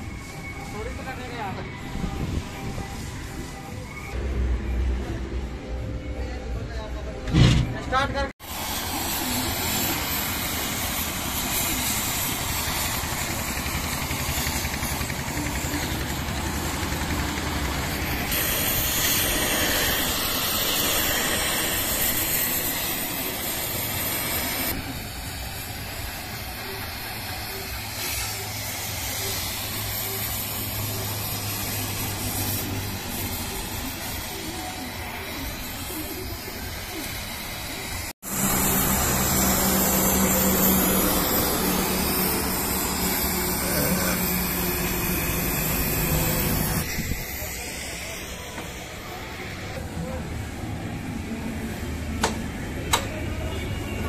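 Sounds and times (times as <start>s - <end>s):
cutting torch hissing: 8.4s - 54.0s
engine running low: 8.5s - 28.8s, 38.2s - 47.2s.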